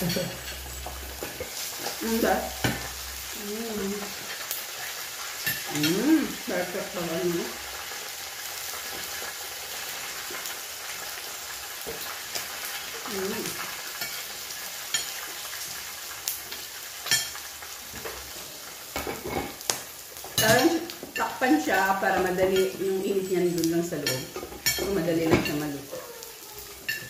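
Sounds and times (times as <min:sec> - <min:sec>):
pork sizzling on griddle: 0:00.0 - 0:27.0.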